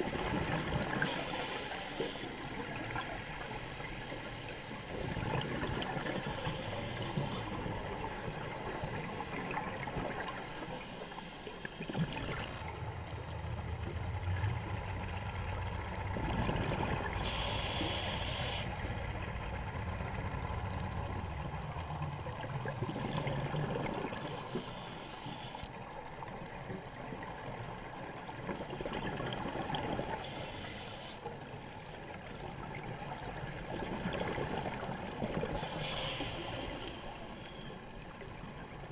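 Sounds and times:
exhaled bubbles gurgling: 0.0 - 14.9, 16.0 - 18.7, 21.4 - 24.8, 28.2 - 30.9, 32.2 - 37.8
regulator hissing on inhale: 1.0 - 2.6, 3.2 - 12.2, 17.1 - 18.8, 24.1 - 25.8, 28.6 - 32.0, 35.5 - 37.9.

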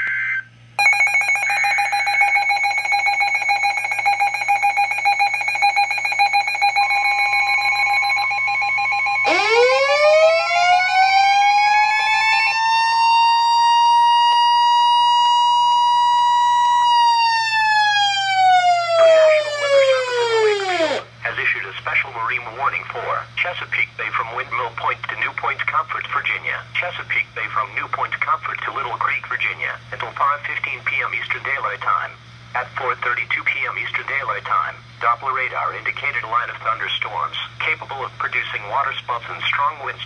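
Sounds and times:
electronic alarm tone: 0.0 - 21.0
warning tone: 0.8 - 21.0
siren-like sweeping tone: 6.8 - 21.1.

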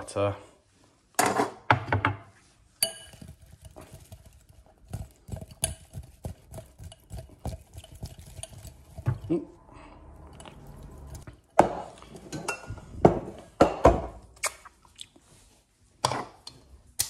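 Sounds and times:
potatoes knocking in glass bowl: 2.8 - 9.4.

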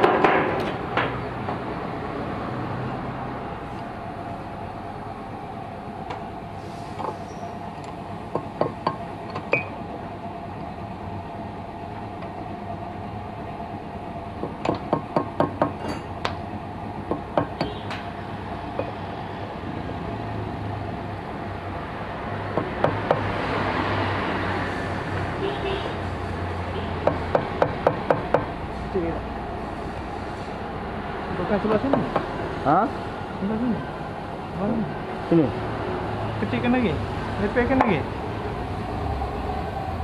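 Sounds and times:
steady hum: 24.6 - 40.0.

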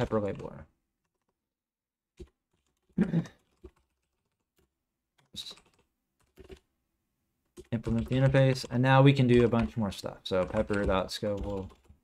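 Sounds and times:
computer keyboard keystrokes: 2.2 - 4.4, 5.2 - 6.6, 7.6 - 12.0.

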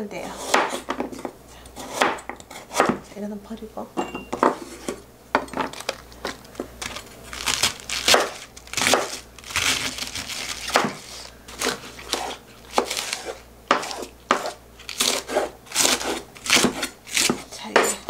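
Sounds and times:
knife crunching through cabbage: 5.7 - 17.6.

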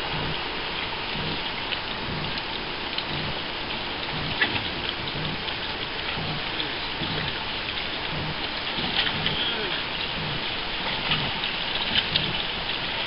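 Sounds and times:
waves lapping against a hull: 0.0 - 13.0
soft low thump: 1.2 - 1.4, 2.0 - 2.4, 3.0 - 3.4, 4.1 - 5.5, 6.1 - 7.4, 8.1 - 9.4, 10.1 - 11.4.

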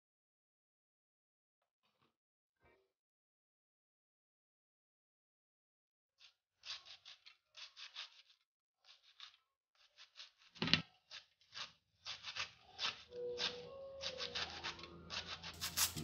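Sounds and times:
knife slicing greens: 6.2 - 16.0.

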